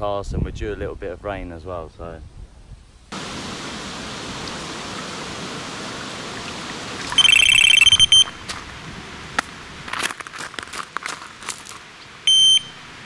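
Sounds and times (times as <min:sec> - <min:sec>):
steady hiss: 0:01.0 - 0:13.0
bite alarm beeping: 0:07.2 - 0:08.5, 0:12.3 - 0:12.8.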